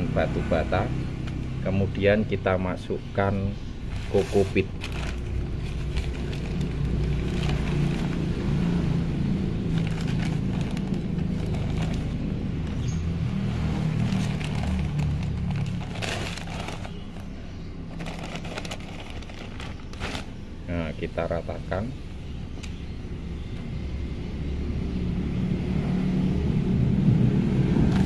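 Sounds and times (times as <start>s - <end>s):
coir crackling: 3.8s - 20.5s
plastic bag crinkling: 3.9s - 8.9s, 9.5s - 13.0s, 13.6s - 20.5s.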